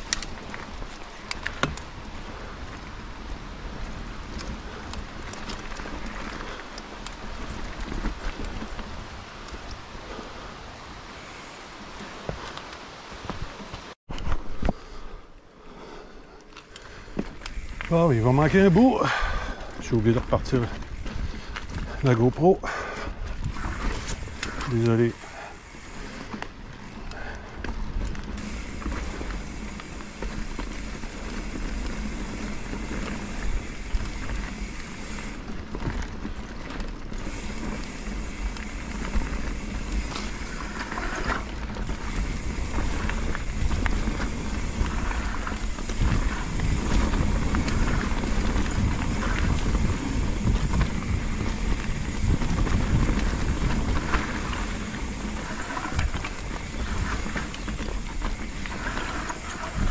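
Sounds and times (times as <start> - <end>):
bike rattling: 0.0 - 59.9
tyres rumbling on dirt: 17.0 - 59.9
wind buffeting microphone: 17.5 - 59.9.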